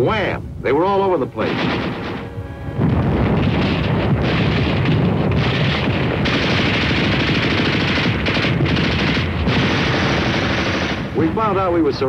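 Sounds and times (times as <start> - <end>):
rapid rifle gunfire: 1.4 - 2.2, 3.2 - 11.3.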